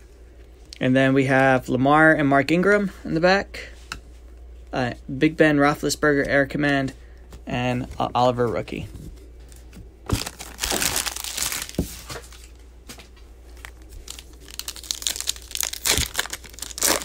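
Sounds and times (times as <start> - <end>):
foil wrapper crinkling: 10.1 - 12.6, 13.4 - 17.0.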